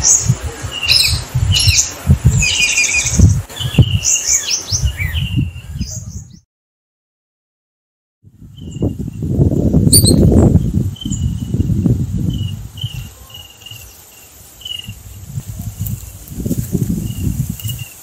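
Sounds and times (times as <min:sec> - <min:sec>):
short high chirps: 0:09.9 - 0:10.3.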